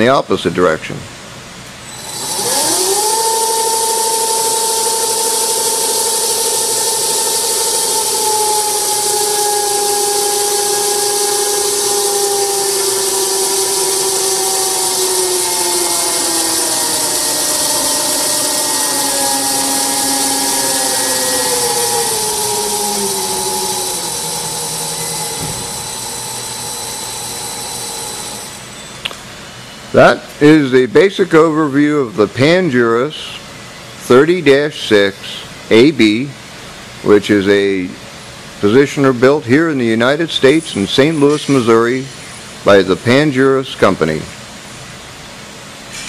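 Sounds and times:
motor whine of turning table: 1.9s - 29.2s.

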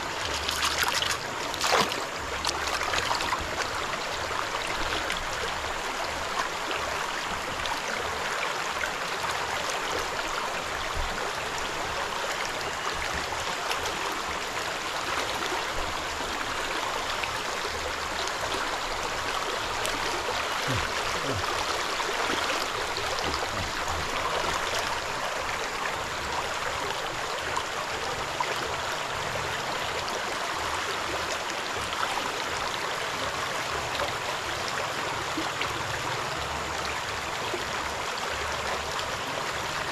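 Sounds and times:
stream water running: 0.0s - 39.9s
water and gravel sloshing in pan: 0.3s - 3.2s.

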